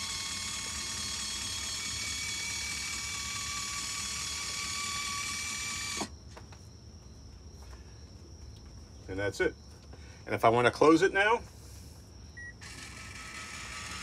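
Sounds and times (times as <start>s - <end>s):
small electric motor whirring: 0.0s - 6.1s, 12.5s - 14.0s.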